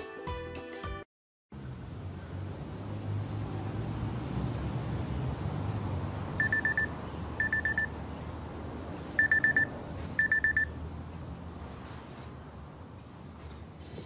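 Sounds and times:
smartwatch alarm beeping: 6.4 - 8.0, 9.2 - 10.8.

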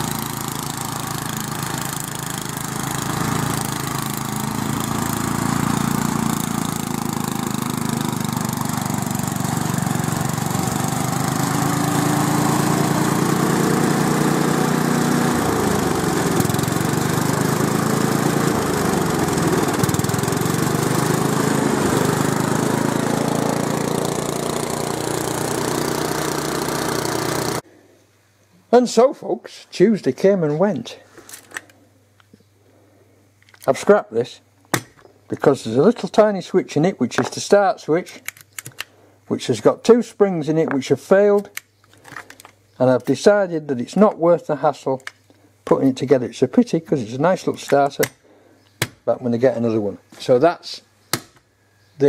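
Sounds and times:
ride-on mower engine running: 0.0 - 27.6.

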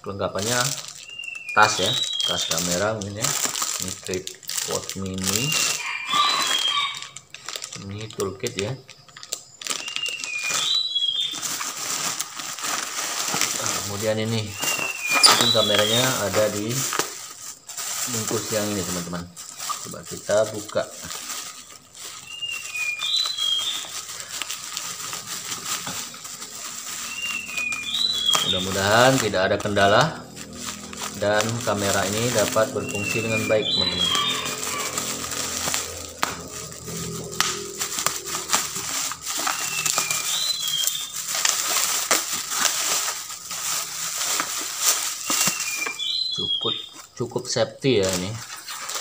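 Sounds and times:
plastic wrap crinkling: 0.0 - 49.0
bird whistling falling notes: 1.0 - 2.7, 5.4 - 7.1, 9.7 - 11.6, 14.4 - 16.3, 22.2 - 24.3, 25.5 - 29.2, 30.1 - 41.7, 45.2 - 47.0.

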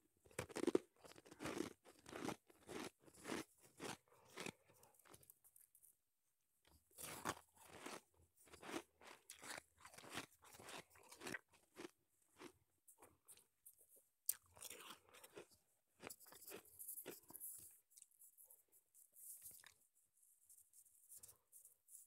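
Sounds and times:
chewing crunchy shaved ice: 0.3 - 5.3, 7.0 - 13.5, 14.3 - 18.1.

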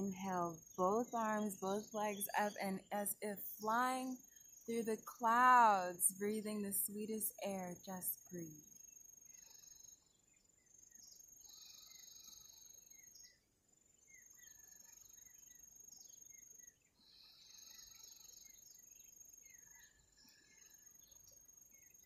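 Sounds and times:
insects trilling: 0.1 - 13.4, 14.1 - 22.0
loud insect buzz: 11.4 - 13.1, 17.0 - 18.7.

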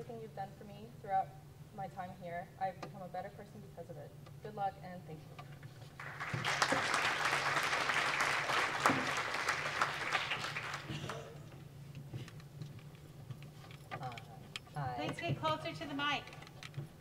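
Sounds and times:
audience applauding: 6.0 - 11.4.

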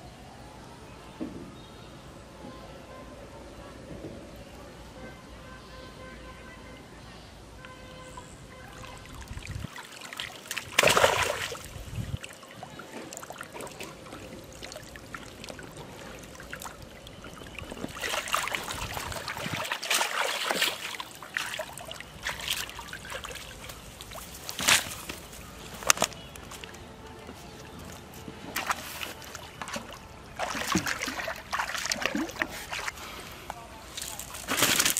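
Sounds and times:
water splashing and trickling: 7.8 - 34.9.

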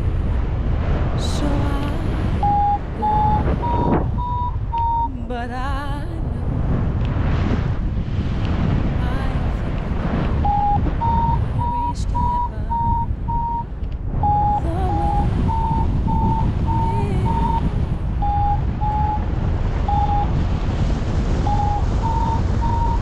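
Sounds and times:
wind on microphone: 0.0 - 23.0
variometer beeping: 2.4 - 5.2, 10.3 - 20.5, 21.4 - 23.0.

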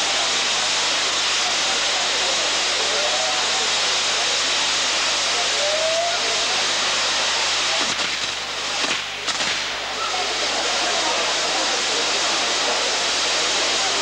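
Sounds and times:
firework fountains hissing: 0.0 - 14.0
sharp firework cracks: 7.8 - 10.0.

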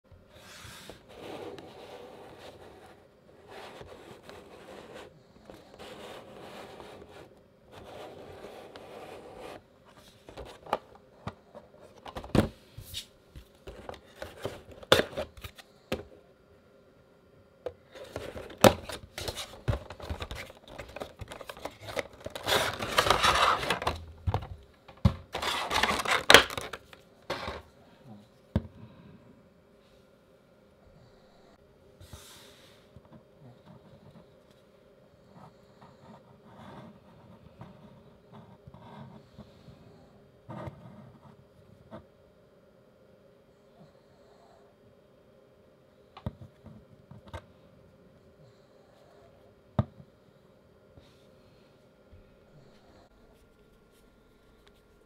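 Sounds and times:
plastic crinkling and rustling: 18.0 - 24.5, 25.3 - 27.0.

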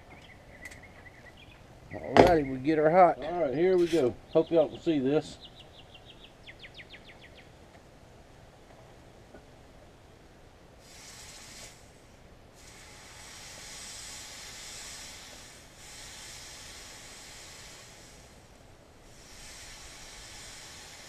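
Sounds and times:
hot steel hissing in water: 3.8 - 4.1, 10.8 - 21.0.

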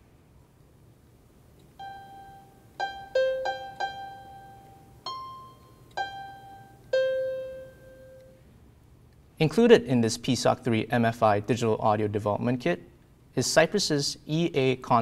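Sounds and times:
piano single notes: 1.8 - 8.4.

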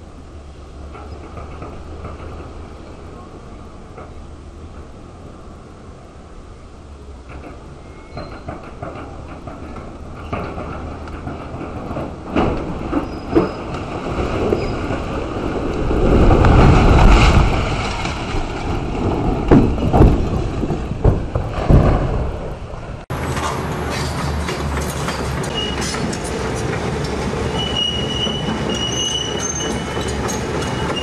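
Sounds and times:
rumble of collapsing rubble: 0.2 - 31.0
concrete cracking and clattering: 8.3 - 22.6
falling debris crashing: 8.6 - 26.6.

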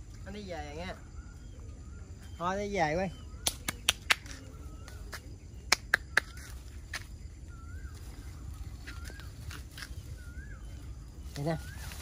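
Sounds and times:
monkey calls: 0.3 - 12.0
branches snapping: 8.8 - 10.2.

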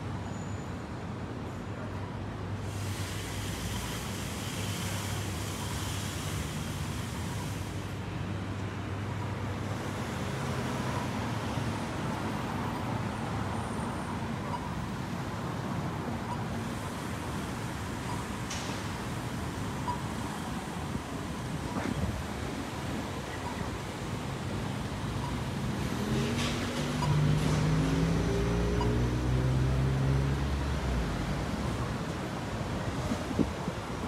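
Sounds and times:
vehicle passing: 25.6 - 31.7.

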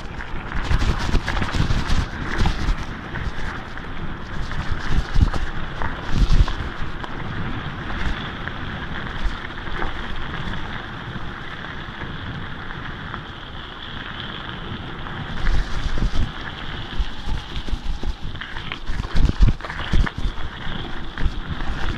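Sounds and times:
bike rattling over bumps: 0.0 - 21.9
tyres crunching over gravel: 0.0 - 21.9
wind buffeting microphone: 0.0 - 21.9.

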